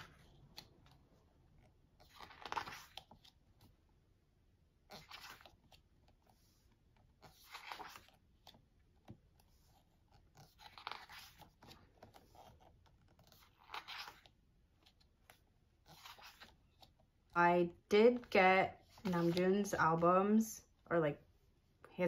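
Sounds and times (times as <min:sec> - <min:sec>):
pages turning swishes: 0:02.0 - 0:03.7, 0:04.9 - 0:08.6, 0:09.4 - 0:17.0, 0:18.8 - 0:19.7.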